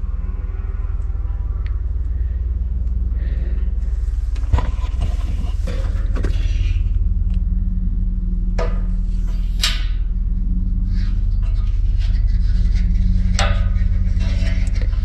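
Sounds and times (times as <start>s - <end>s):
low mechanical hum: 0.0s - 15.0s
metallic scrapes and clicks: 11.0s - 15.0s.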